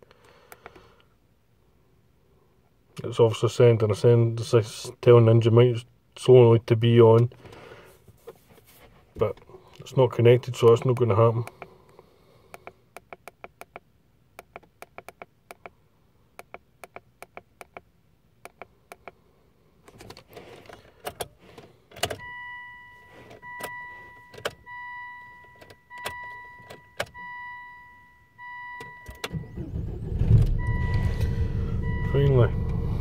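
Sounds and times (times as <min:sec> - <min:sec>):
two-tone warning chime: 0:22.2 - 0:29.6, 0:30.5 - 0:32.7
car engine cranking and starting: 0:28.4 - 0:33.0.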